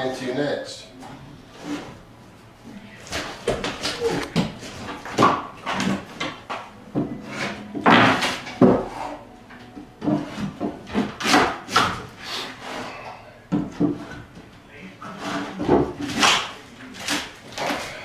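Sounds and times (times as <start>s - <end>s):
loose boards rubbing: 3.0s - 14.4s.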